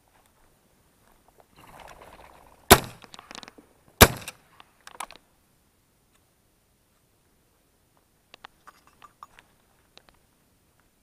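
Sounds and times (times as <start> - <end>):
rustle: 0.0 - 11.0
shotgun shots: 2.7 - 3.1, 4.0 - 4.4.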